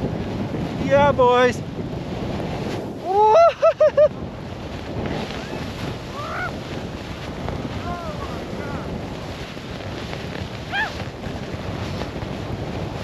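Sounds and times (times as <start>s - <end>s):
wind on microphone: 0.0s - 13.0s
person whooping: 3.0s - 4.0s, 6.1s - 6.6s, 10.7s - 11.0s.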